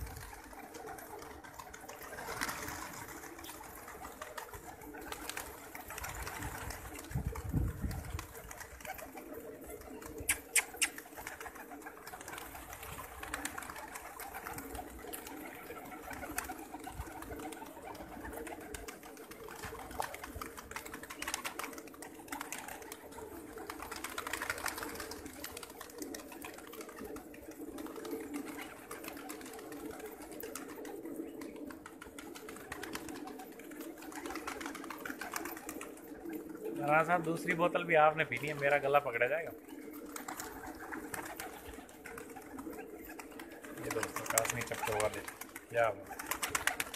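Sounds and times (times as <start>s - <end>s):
pigeons cooing: 0.0s - 46.9s
sharp clicks: 10.3s - 11.0s.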